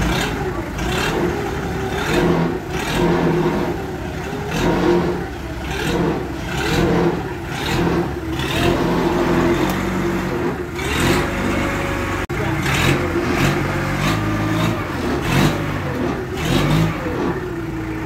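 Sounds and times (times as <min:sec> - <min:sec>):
forklift engine revving: 0:00.0 - 0:18.0.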